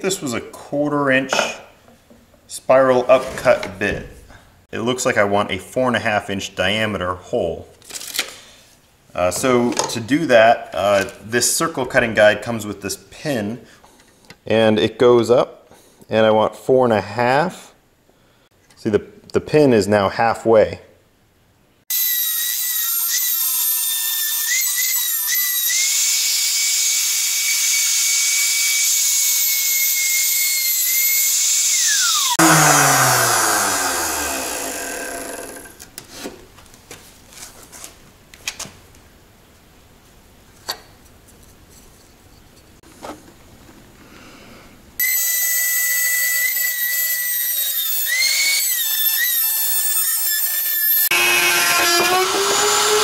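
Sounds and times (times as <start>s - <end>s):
router cutting wood whining: 21.9s - 35.8s, 45.0s - 53.0s.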